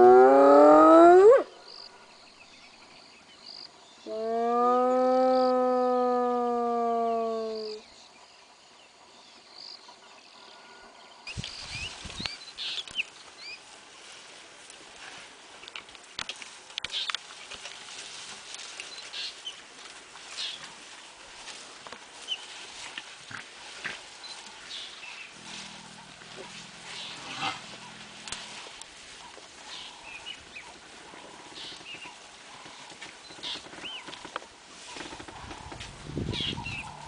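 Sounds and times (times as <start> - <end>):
hyena call: 4.1 - 7.8
elephants snapping and rustling scrub: 14.0 - 36.8
small birds chirping: 24.1 - 37.0.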